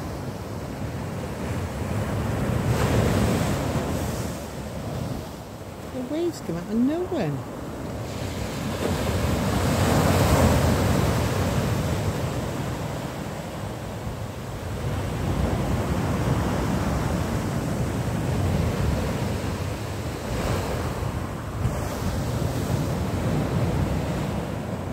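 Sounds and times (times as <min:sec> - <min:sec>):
sea waves breaking on shore: 0:00.0 - 0:24.9.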